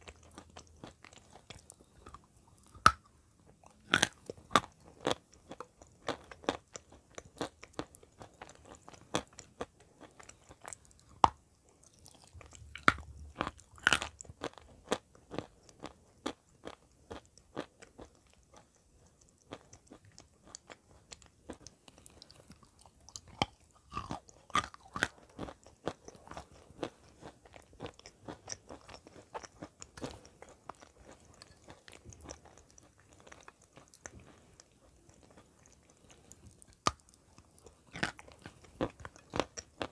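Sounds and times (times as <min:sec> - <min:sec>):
crunching and chewing clay: 0:00.0 - 0:39.9.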